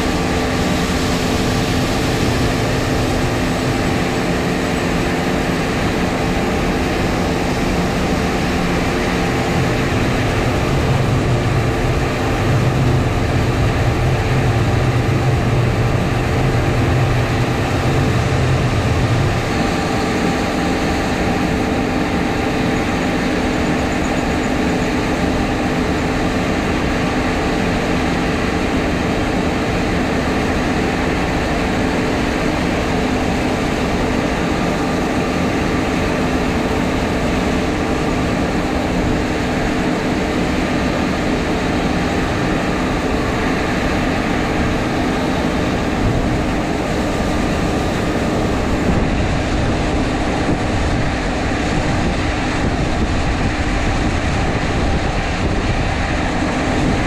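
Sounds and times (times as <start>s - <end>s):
deep low hum: 8.0s - 21.7s.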